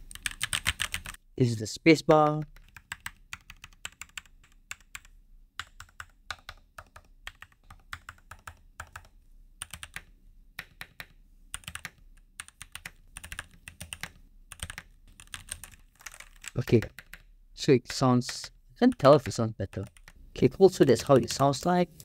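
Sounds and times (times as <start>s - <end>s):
muted keyboard typing: 0.0s - 1.2s, 2.1s - 20.2s, 20.8s - 22.0s.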